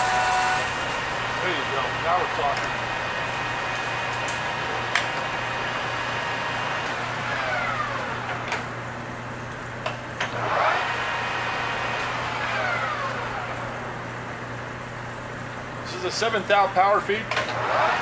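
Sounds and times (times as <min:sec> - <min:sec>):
cutting tool whine: 0:00.0 - 0:08.7, 0:10.2 - 0:13.9, 0:17.4 - 0:18.0
lathe motor hum: 0:00.0 - 0:15.4.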